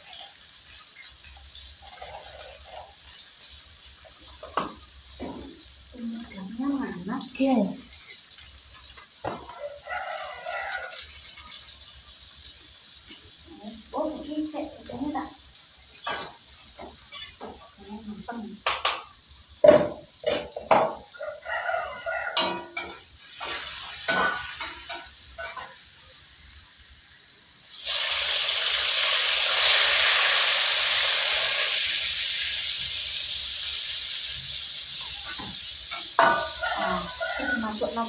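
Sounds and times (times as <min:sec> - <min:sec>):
spatula scraping in a wok: 0:00.0 - 0:19.1, 0:20.2 - 0:26.4, 0:33.2 - 0:38.0
food sizzling in hot oil: 0:00.0 - 0:38.0.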